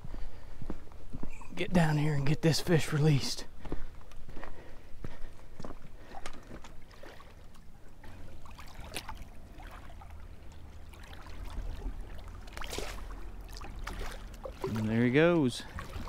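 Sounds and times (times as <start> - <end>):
river water lapping and splashing: 2.6 - 16.0
low steady rumble: 3.5 - 16.0
sharp water splashes: 6.0 - 16.0.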